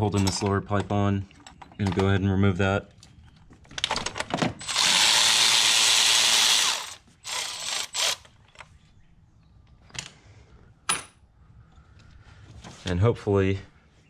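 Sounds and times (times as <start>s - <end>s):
ratchet spinning a bolt: 4.6s - 8.2s.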